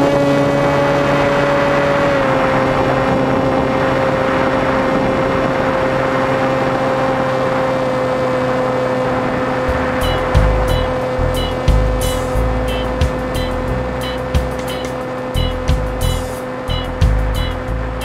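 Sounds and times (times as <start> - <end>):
model airplane motor whining: 0.0 - 16.9
air rushing past microphone: 8.4 - 16.4.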